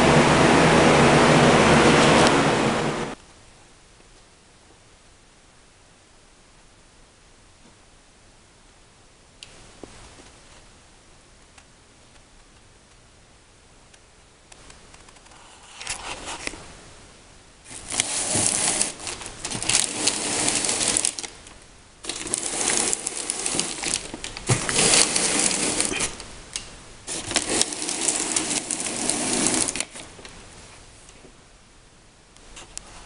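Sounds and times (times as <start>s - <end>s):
masking tape ripping off roll: 17.7s - 21.4s, 22.0s - 26.2s, 27.1s - 30.2s.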